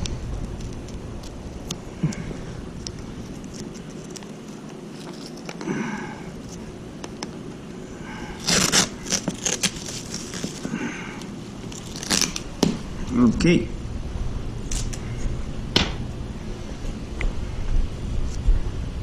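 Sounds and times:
masking tape pulled off roll: 8.4 - 10.7, 11.6 - 12.8
plastic sheet crinkling: 8.4 - 12.8
tape ripping: 8.4 - 12.8, 14.6 - 15.0.

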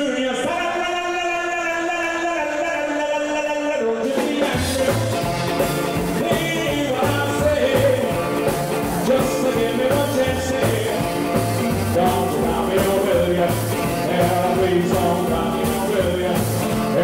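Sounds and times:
drum kit beat: 4.0 - 17.0
electric guitar: 4.0 - 17.0
bass guitar line: 4.3 - 17.0.

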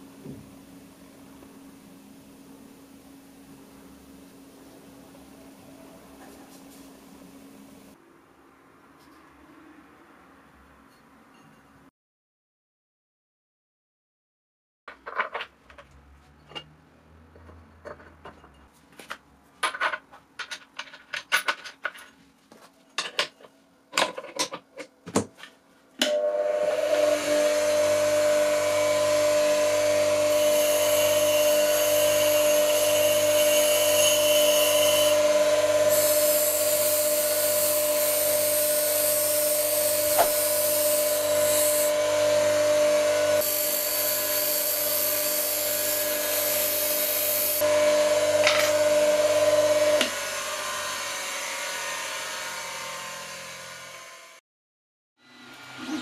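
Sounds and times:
bench grinder motor hum and whine: 26.0 - 54.4.

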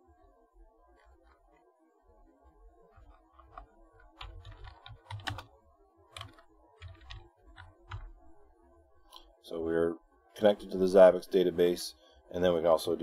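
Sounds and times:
computer keyboard typing: 2.9 - 5.5, 6.1 - 8.1.

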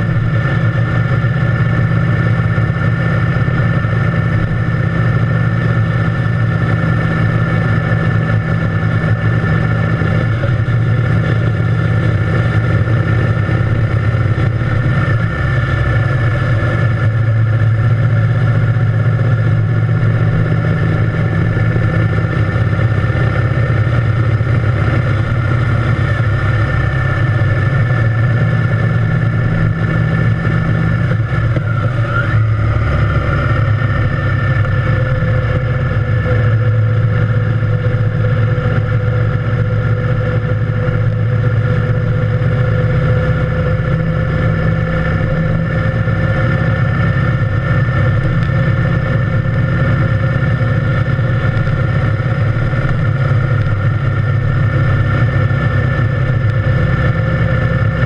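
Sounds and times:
motorcycle engine running steadily: 0.0 - 58.0.

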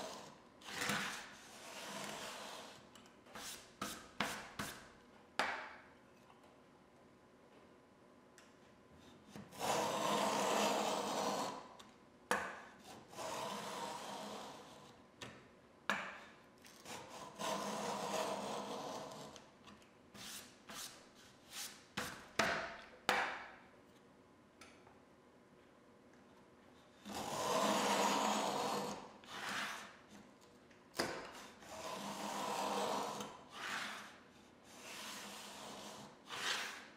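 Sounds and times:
plane blade scraping wood: 9.3 - 11.7, 12.8 - 14.9, 16.8 - 19.3, 27.0 - 30.1, 31.4 - 36.9.

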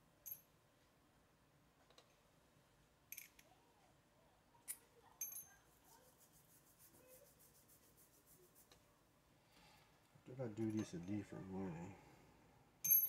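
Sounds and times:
high metal clink: 3.1 - 3.4, 5.2 - 5.6
metal tools clicking: 3.1 - 3.5.

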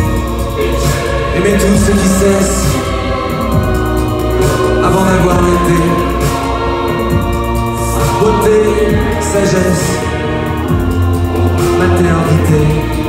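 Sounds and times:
keyboard: 0.0 - 13.0
person singing into microphone: 0.0 - 13.0.

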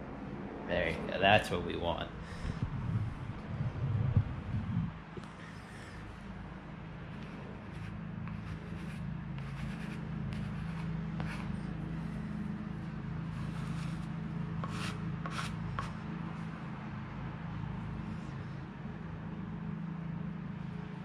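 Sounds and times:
steady low hum: 0.0 - 21.0
squeegee scraping wet board: 7.2 - 12.3, 13.3 - 16.0.

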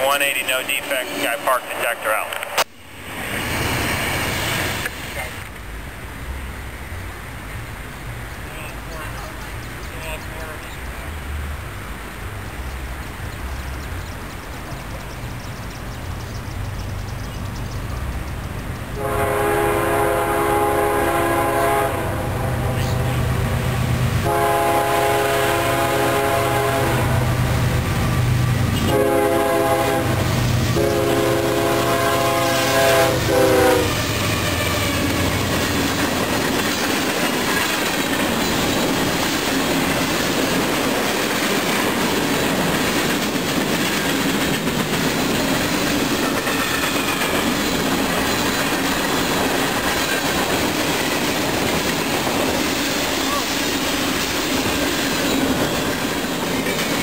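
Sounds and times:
locomotive air horn blasts: 19.0 - 23.1, 24.2 - 27.4, 28.8 - 34.0
train wheels clacking over rail joints: 34.4 - 57.0.

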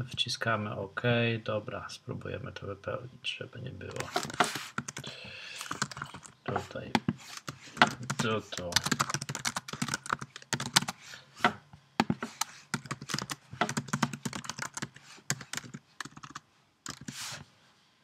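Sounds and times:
keyboard typing: 3.9 - 6.4, 7.0 - 11.0, 12.0 - 17.2.

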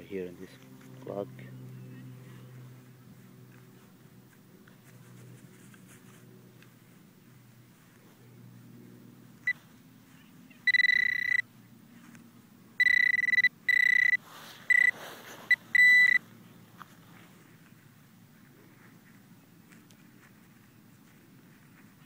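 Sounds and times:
metal detector beeping: 10.6 - 11.5, 12.8 - 16.2.

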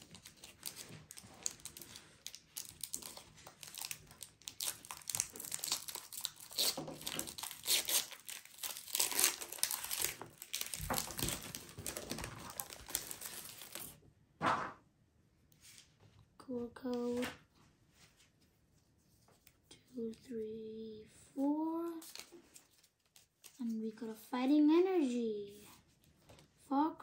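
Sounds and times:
foil wrapper crinkling and tearing: 0.0 - 14.0, 22.0 - 23.6.

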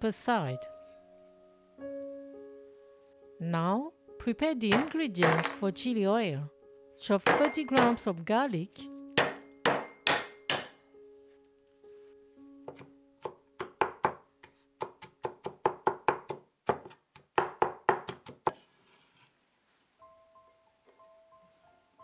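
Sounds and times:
soft background music: 0.0 - 16.2, 20.0 - 22.0
cleaver chopping on wooden board: 4.7 - 5.6, 7.3 - 8.0, 9.2 - 10.8, 12.7 - 14.2, 14.8 - 18.5.

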